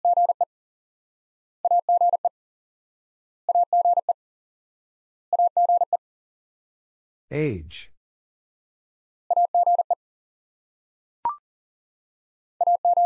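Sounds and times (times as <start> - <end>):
morse code beeps: 12.6 - 13.0.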